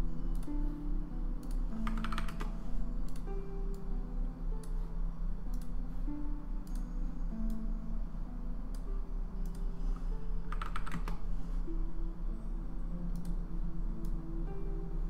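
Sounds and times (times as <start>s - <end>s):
background music with held notes: 0.0s - 15.0s
computer keyboard typing: 1.4s - 3.3s, 10.4s - 11.3s.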